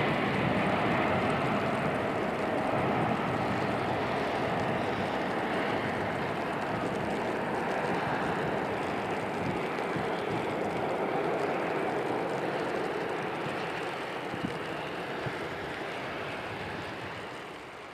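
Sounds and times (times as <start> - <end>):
jet engine rush: 0.0 - 17.9.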